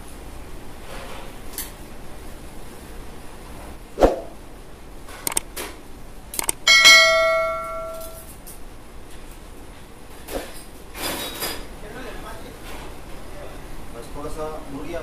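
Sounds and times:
sharp clicks: 5.2 - 5.5, 6.3 - 6.6
bell chime ding: 6.7 - 8.2.

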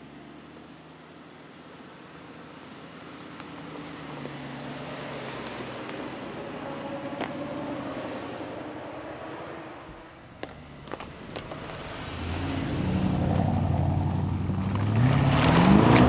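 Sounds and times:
car engine running: 10.1 - 16.0.

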